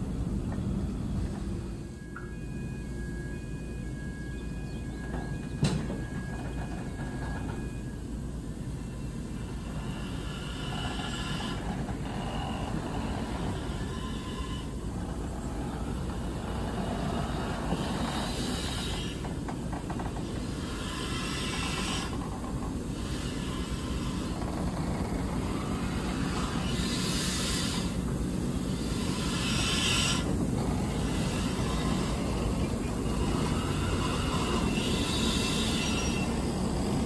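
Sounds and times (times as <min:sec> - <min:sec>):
diesel locomotive engine rumble: 0:00.0 - 0:37.0
hiss: 0:09.5 - 0:19.4, 0:20.2 - 0:22.3, 0:22.9 - 0:24.6, 0:25.5 - 0:37.0.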